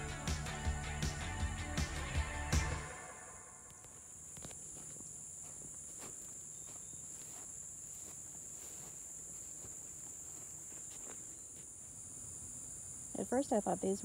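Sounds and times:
insects droning: 0.0 - 14.0
footsteps in grass: 3.7 - 12.0.

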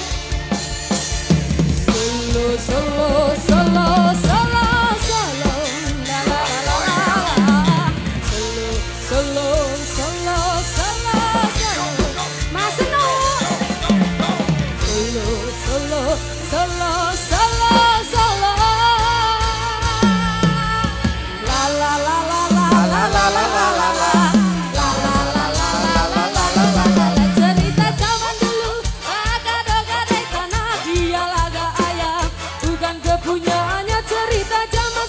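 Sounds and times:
live band playing: 0.0 - 35.0
woman singing into a microphone: 1.9 - 35.0.

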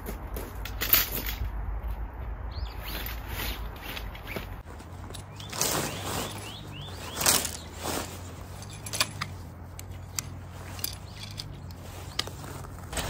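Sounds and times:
tent fabric rustling: 2.8 - 13.0
metal tent pole clicking: 8.6 - 12.4.

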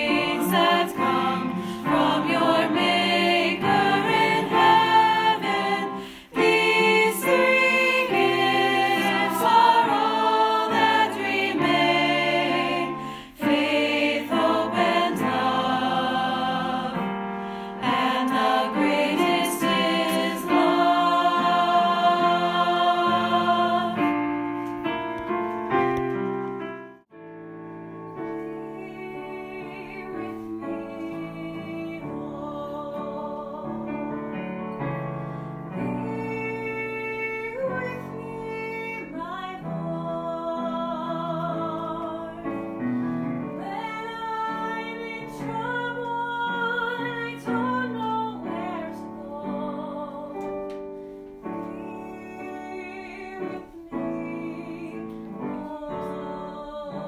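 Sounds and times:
choir singing sustained chord: 0.0 - 24.2
voices singing with piano: 0.0 - 57.0.

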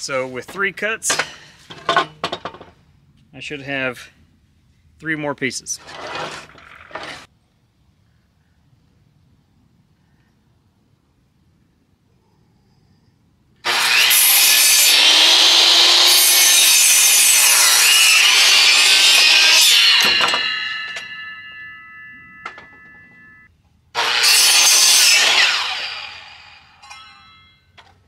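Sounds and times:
miter saw cutting wood: 13.6 - 22.0, 24.0 - 26.8
saw blade ringing: 17.0 - 23.5, 24.1 - 27.8.

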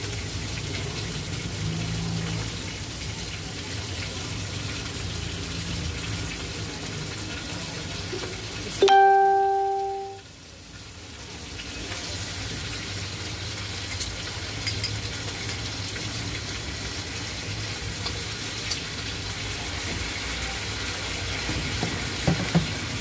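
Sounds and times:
food sizzling in oil: 0.0 - 23.0
loud ringing tone: 8.8 - 10.2.

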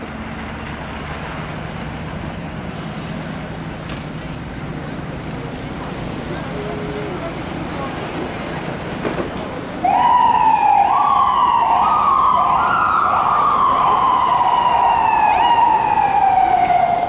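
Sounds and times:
emergency vehicle siren: 9.8 - 17.0.

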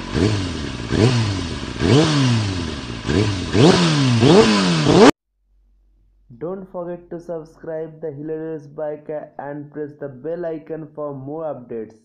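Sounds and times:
motorcycle engine revving: 0.0 - 5.2.

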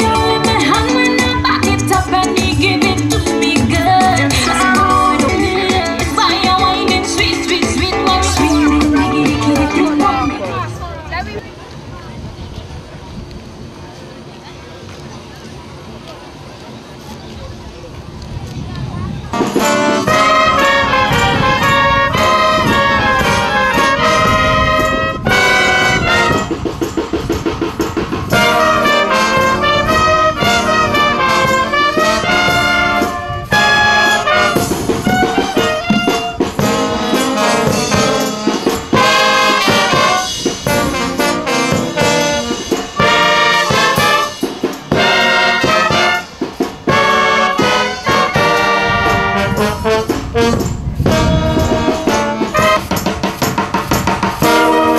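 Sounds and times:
brass and woodwind band playing: 4.0 - 11.2, 19.3 - 27.6, 28.2 - 54.9.

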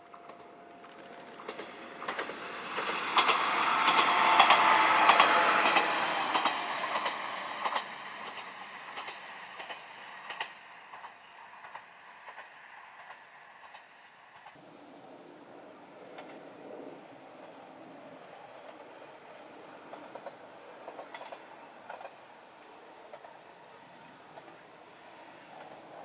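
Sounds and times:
wheels clicking over rail joints: 0.0 - 14.6, 16.0 - 26.0
diesel railcar passing: 0.0 - 26.0.

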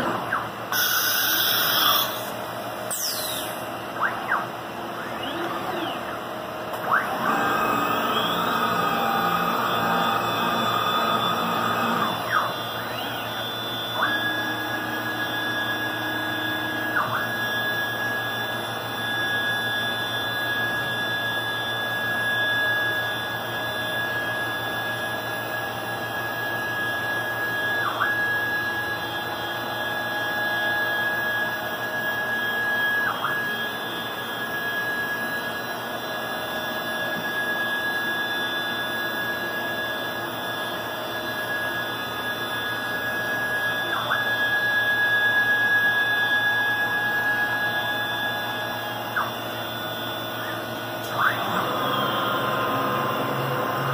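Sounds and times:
spindle high whine: 0.0 - 53.9.

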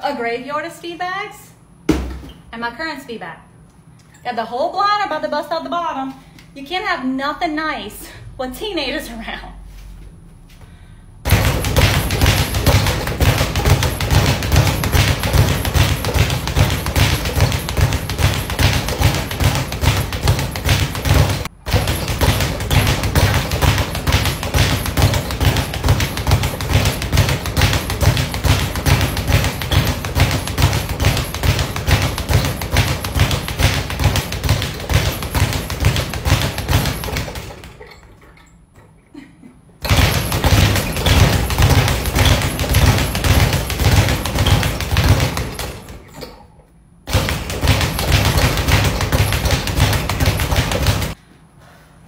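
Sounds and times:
speed bag rattling: 11.3 - 38.1, 39.8 - 46.1, 47.1 - 51.2.

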